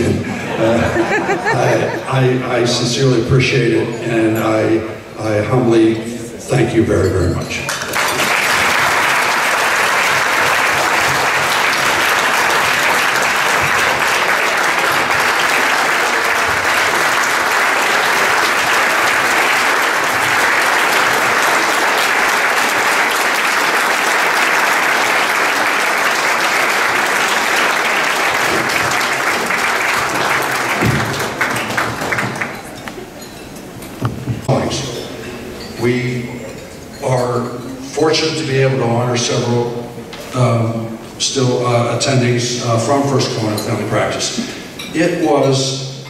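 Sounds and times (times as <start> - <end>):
audience applauding: 7.7 - 33.2.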